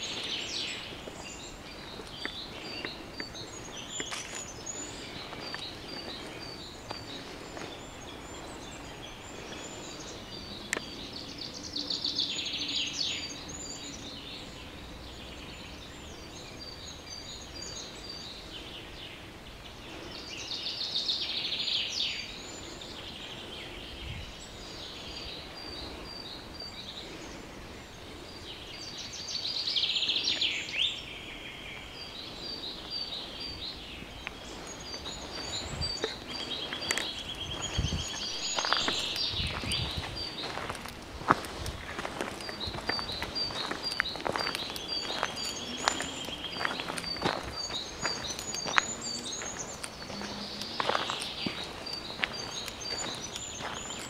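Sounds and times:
songbird call notes: 0.0 - 54.0
bird song phrase of rapid notes: 42.0 - 54.0.

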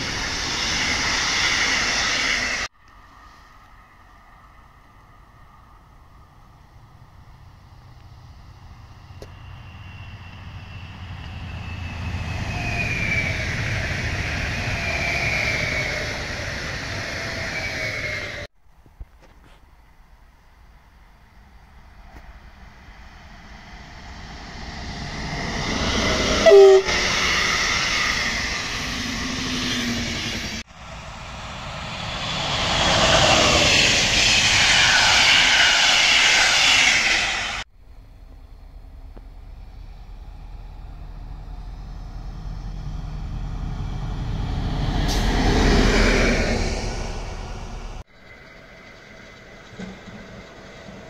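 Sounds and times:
diesel locomotive engine rumble: 0.0 - 18.5, 19.6 - 51.0
train wheel and rail noise: 0.0 - 18.5, 19.2 - 51.0
train horn blast: 26.4 - 27.3.

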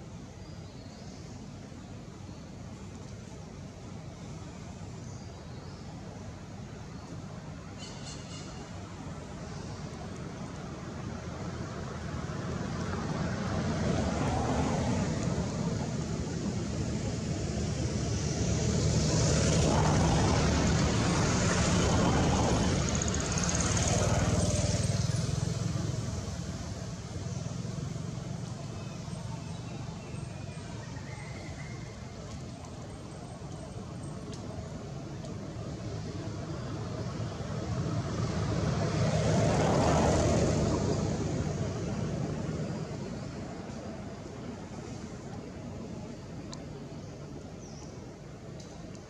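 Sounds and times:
vehicle passing by: 12.0 - 30.0, 35.6 - 45.1.

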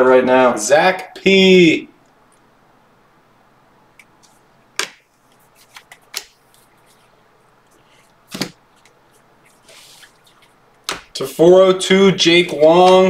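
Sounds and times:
trading cards clicking and flicking: 4.0 - 7.1, 7.7 - 11.2.

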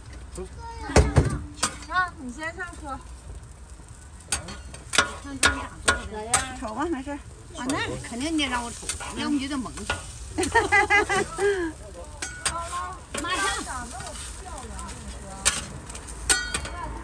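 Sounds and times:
faint sizzle: 0.0 - 17.0
metal spatulas clacking on griddle: 1.6 - 1.9, 4.3 - 6.8, 7.6 - 11.3, 12.1 - 16.9.

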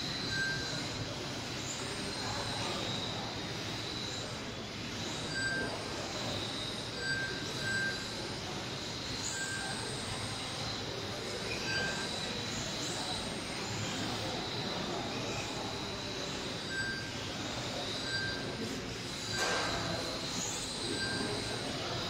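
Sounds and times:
electric toy car motors whining: 0.0 - 22.0
short beeps: 0.2 - 0.8, 5.3 - 5.8, 7.0 - 8.2, 16.6 - 17.1, 17.9 - 21.7.

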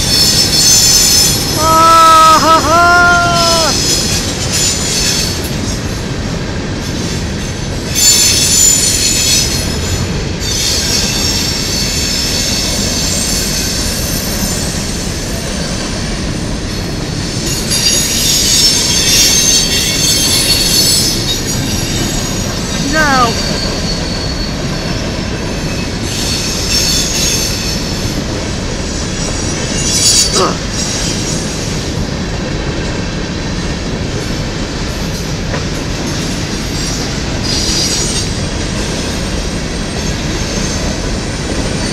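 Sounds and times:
train wheel squeal: 0.0 - 1.6, 3.2 - 41.9
train cars rumbling and clattering: 0.0 - 41.9.

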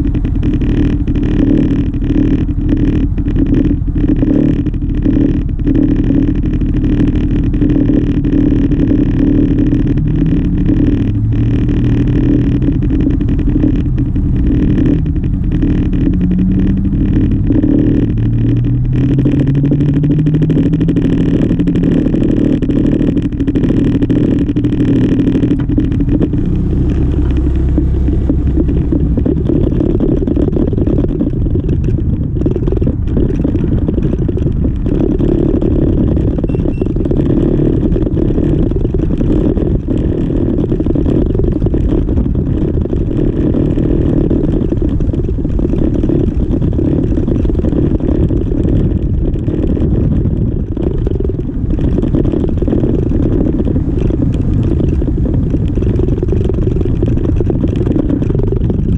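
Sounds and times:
scooter engine idling: 0.0 - 40.4
scooter pulling off: 0.0 - 58.9
cars passing and accelerating: 3.5 - 32.2.

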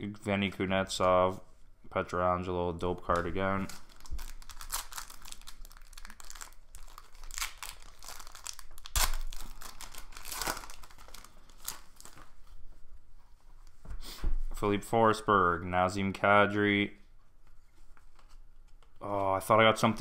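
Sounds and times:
foil wrapper tearing and crinkling: 3.6 - 12.3.

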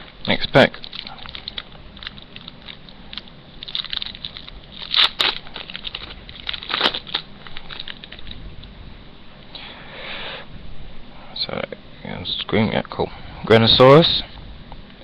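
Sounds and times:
foil wrapper crinkling: 0.2 - 8.7.

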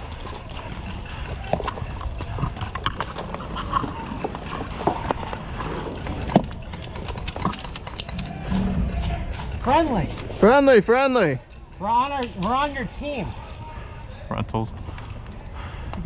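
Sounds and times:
steady low rumble: 8.0 - 10.4.

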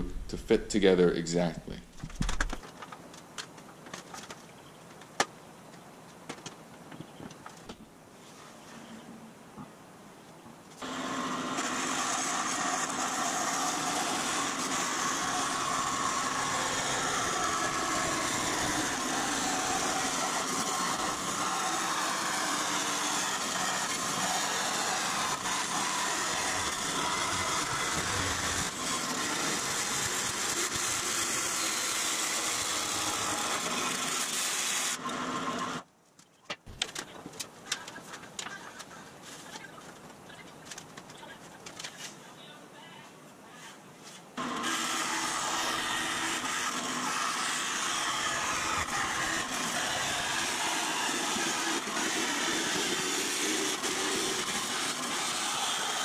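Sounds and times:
band saw cutting aluminum: 10.8 - 35.8, 44.4 - 56.0.

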